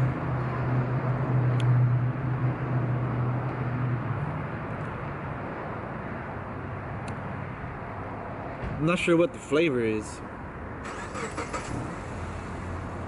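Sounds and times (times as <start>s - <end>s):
vehicle engine humming: 0.0s - 8.8s, 10.2s - 13.0s
outdoor background noise: 0.0s - 13.0s.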